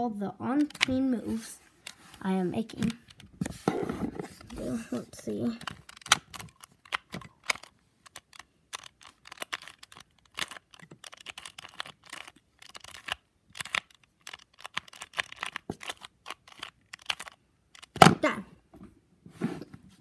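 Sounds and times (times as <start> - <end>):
puzzle cube clicking: 0.6 - 1.1, 4.2 - 18.2.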